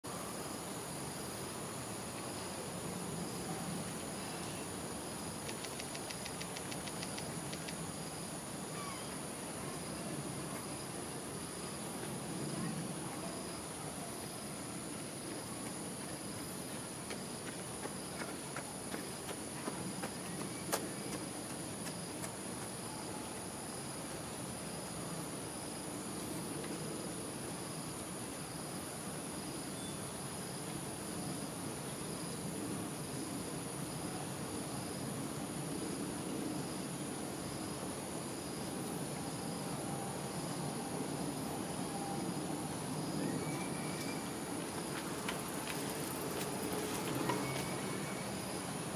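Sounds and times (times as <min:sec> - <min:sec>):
high-pitched insect chorus: 0:00.1 - 0:48.9
faint clicks: 0:05.4 - 0:07.8.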